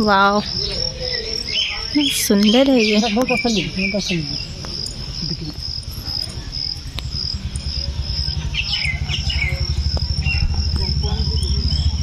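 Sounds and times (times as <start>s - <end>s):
insects chirping: 0.0s - 12.0s
bird chirps: 0.1s - 12.0s
low rumble: 4.2s - 12.0s.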